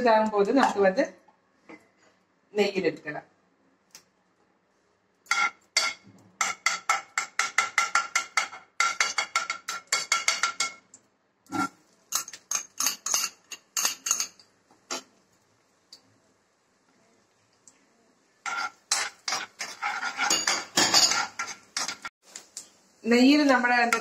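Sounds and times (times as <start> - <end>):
utensil scraping a frying pan: 11.5 - 15.1, 18.4 - 22.1.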